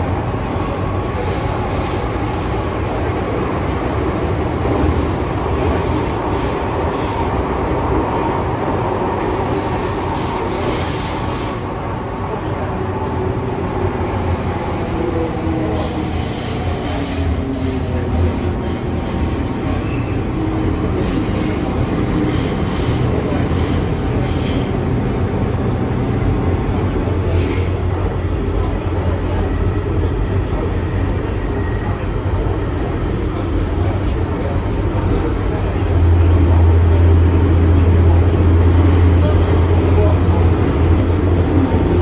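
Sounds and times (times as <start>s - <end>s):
train wheels rumbling on track: 0.0s - 42.0s
high wheel squeals: 9.5s - 11.8s, 19.6s - 24.6s.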